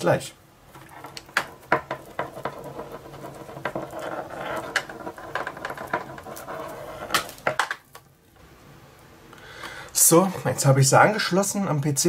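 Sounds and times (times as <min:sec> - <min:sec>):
cable rustling and rattling: 0:00.7 - 0:08.1.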